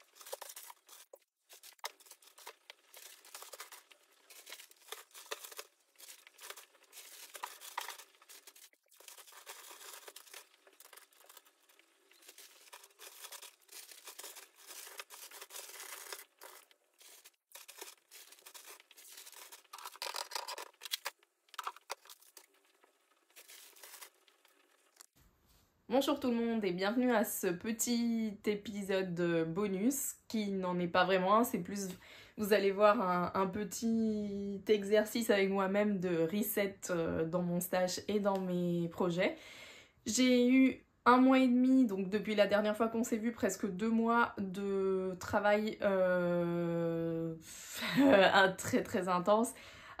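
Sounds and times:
crinkly material rustling: 0:00.0 - 0:25.2.

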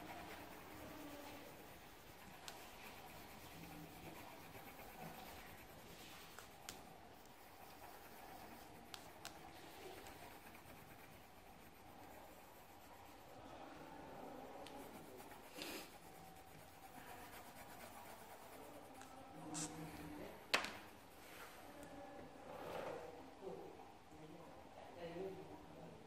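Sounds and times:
pen scratching on paper: 0:00.0 - 0:13.4, 0:14.5 - 0:21.2.

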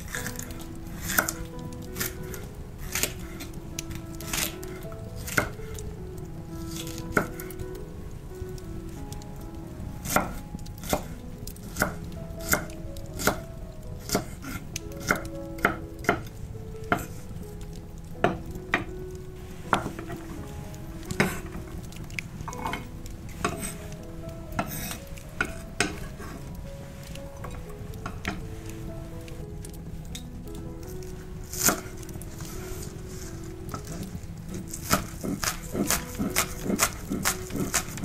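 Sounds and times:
knife chopping on wooden board: 0:34.8 - 0:38.0.

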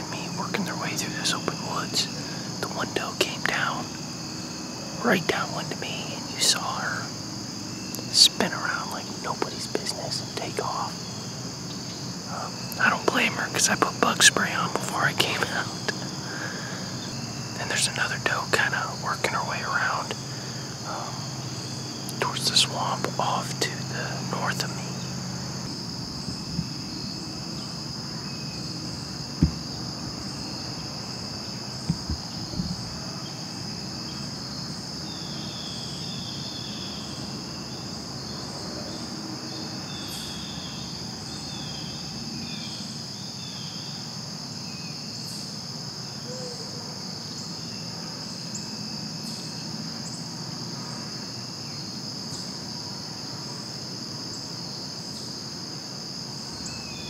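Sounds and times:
crickets and insects chirping: 0:00.0 - 0:57.0
short dull knocks: 0:26.1 - 0:26.9, 0:29.4 - 0:30.3, 0:31.8 - 0:33.0.

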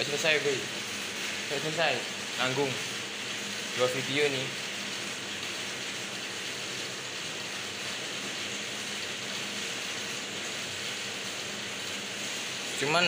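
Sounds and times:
printer fans hissing: 0:00.0 - 0:13.0.

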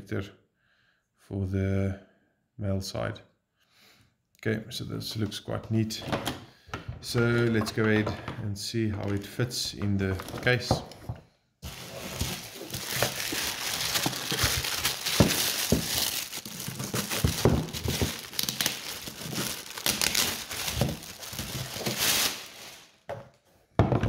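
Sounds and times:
plastic bag crinkling: 0:11.6 - 0:23.1.

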